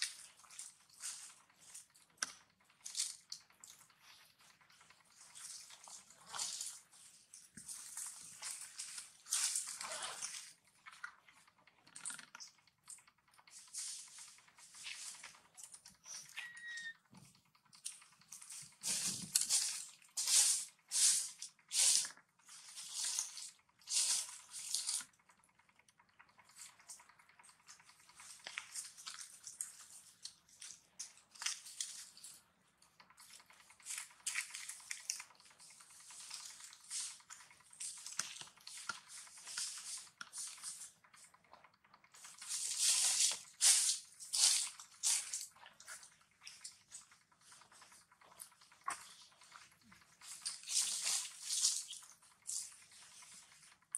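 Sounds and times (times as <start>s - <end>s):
dry leaves rustling: 18.5s - 25.0s, 42.2s - 45.4s, 50.2s - 52.7s.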